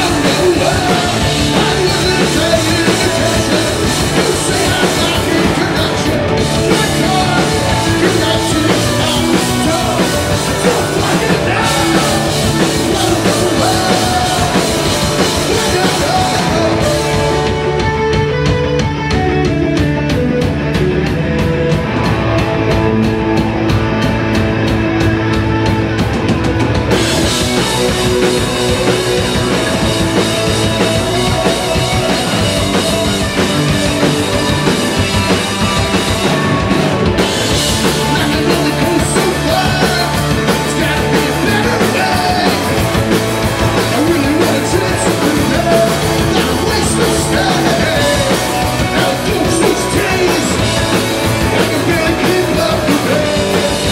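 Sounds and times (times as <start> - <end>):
person singing: 0.0 - 17.8, 37.7 - 42.9, 43.7 - 53.9
bass guitar: 0.0 - 53.9
distorted electric guitars: 0.0 - 53.9
drum kit with cymbals: 0.0 - 53.9.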